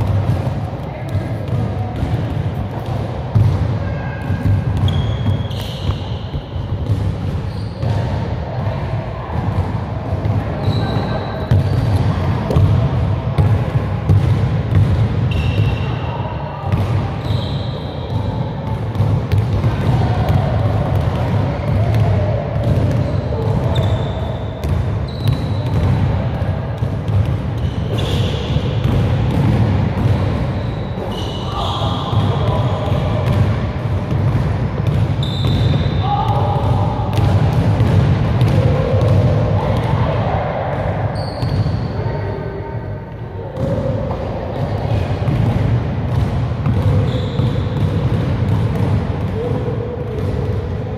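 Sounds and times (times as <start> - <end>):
basketball bouncing on gym floor: 0.0 - 15.9, 16.6 - 40.2, 43.6 - 50.9
shoe squeaks: 4.8 - 6.6, 7.4 - 8.0, 10.6 - 11.8, 15.3 - 16.0, 17.2 - 18.2, 23.0 - 25.7, 27.6 - 28.6, 30.5 - 32.6, 35.2 - 36.2, 41.2 - 42.0, 47.0 - 47.7.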